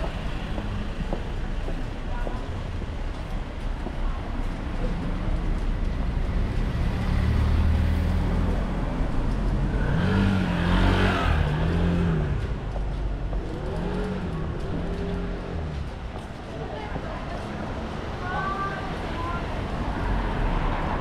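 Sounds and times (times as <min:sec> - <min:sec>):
traffic rumble: 0:00.0 - 0:21.0
vehicle passing: 0:05.5 - 0:16.3.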